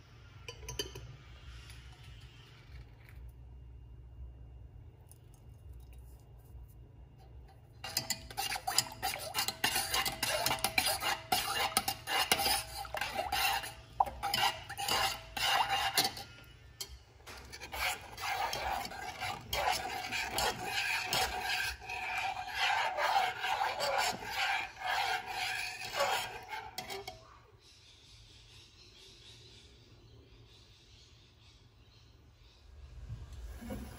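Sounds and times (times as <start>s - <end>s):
metal spoon stirring in saucepan: 0.4s - 3.2s, 7.2s - 27.3s.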